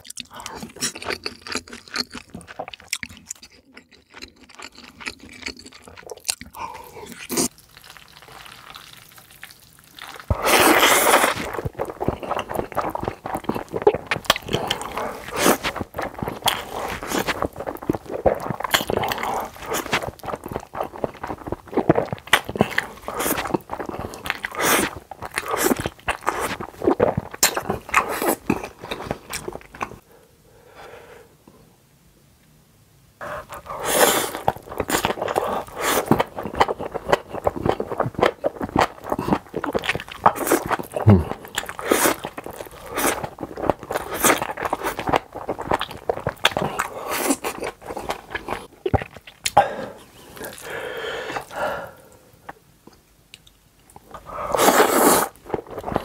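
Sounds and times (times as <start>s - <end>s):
man slurping noodles: 10.3s - 13.8s, 14.5s - 17.4s, 33.2s - 36.1s, 40.4s - 42.2s, 54.3s - 55.4s
wet chewing smacks: 33.2s - 51.6s.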